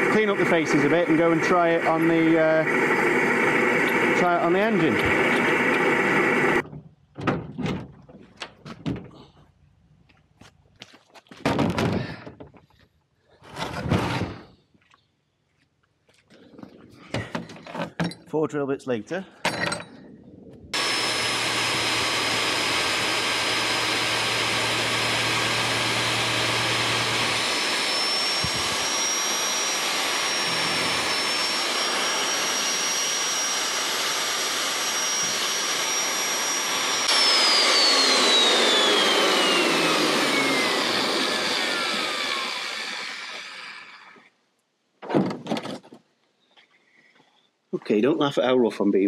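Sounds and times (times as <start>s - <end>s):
drill whining: 0.0s - 6.6s, 20.8s - 44.4s.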